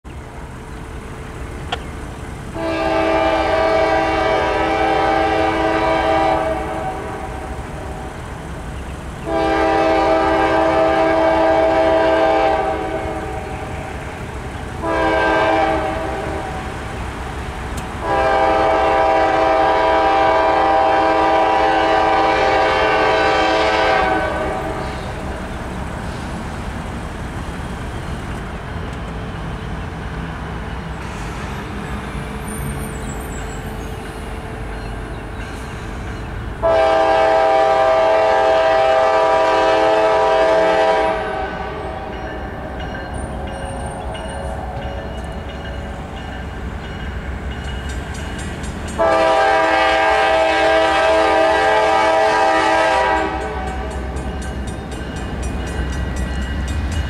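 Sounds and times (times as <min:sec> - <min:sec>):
locomotive air horn blasts: 0:02.6 - 0:07.6, 0:09.2 - 0:13.9, 0:14.8 - 0:16.7, 0:18.0 - 0:25.3, 0:36.6 - 0:42.4, 0:49.0 - 0:54.1.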